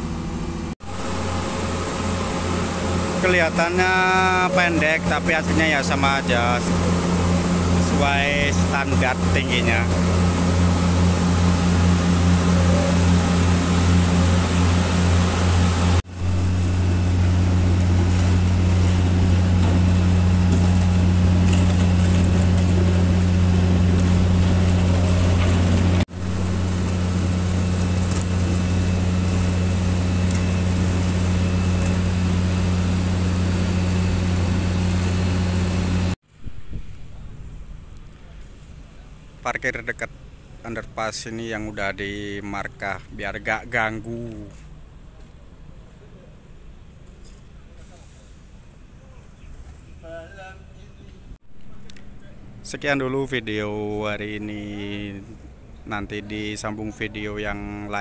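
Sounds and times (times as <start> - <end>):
diesel engine droning: 0.0 - 38.0, 51.4 - 58.0.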